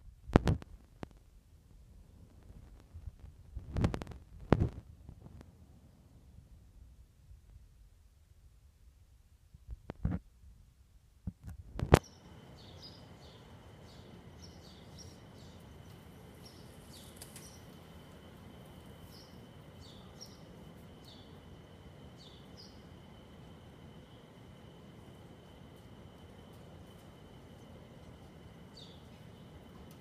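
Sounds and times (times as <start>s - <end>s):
outdoor hiss: 11.8s - 30.0s.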